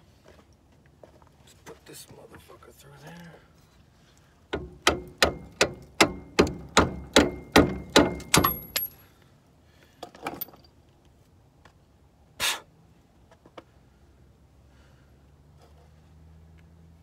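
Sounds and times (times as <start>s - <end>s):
hammer striking steel: 4.6s - 9.0s.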